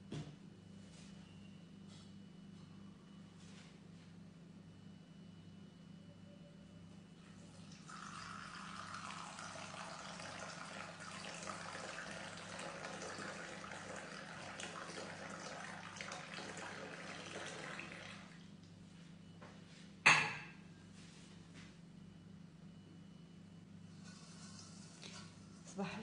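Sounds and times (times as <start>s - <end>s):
liquid pouring into mug: 7.5s - 18.4s.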